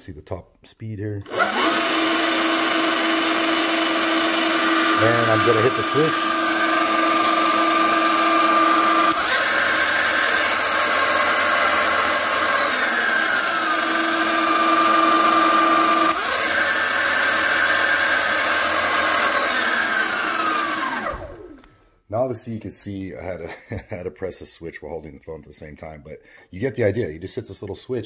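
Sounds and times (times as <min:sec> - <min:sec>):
electric motor whine: 0:01.2 - 0:21.7.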